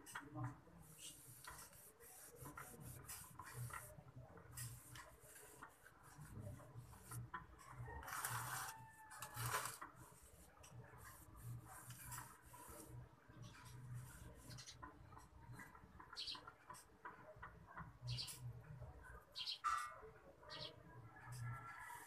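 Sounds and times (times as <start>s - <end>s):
fingers scratching potting mix: 0.0s - 17.4s.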